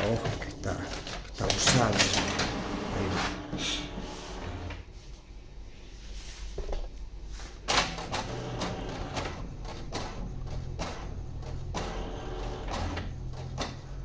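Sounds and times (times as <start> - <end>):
printer clack: 0.0 - 4.7, 7.7 - 13.8
printer paper feed clicks: 0.0 - 4.8, 7.7 - 13.8
printer motors whirring: 0.0 - 4.9, 7.7 - 14.0.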